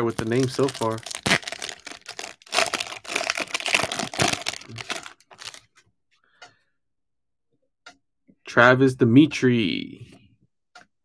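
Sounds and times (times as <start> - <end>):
wrapper crinkling and tearing: 0.0 - 5.6.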